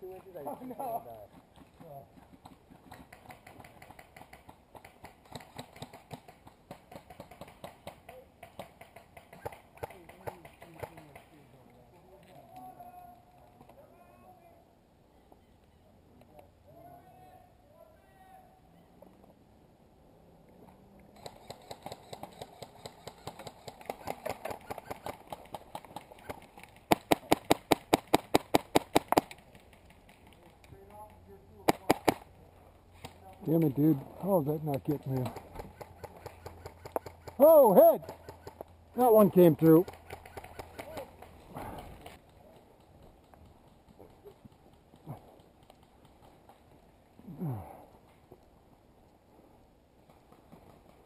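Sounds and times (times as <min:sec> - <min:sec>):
airsoft guns firing: 0:26.3 - 0:29.4, 0:31.6 - 0:32.2.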